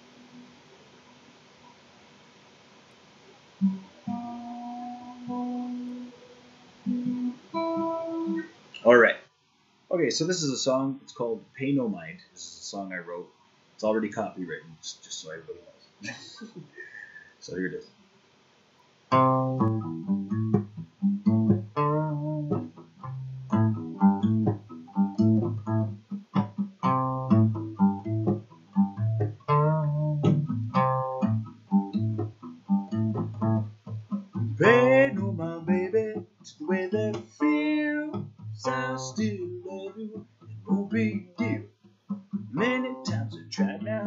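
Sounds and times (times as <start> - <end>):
solo guitar picking: 3.6 - 8.5, 19.1 - 44.0.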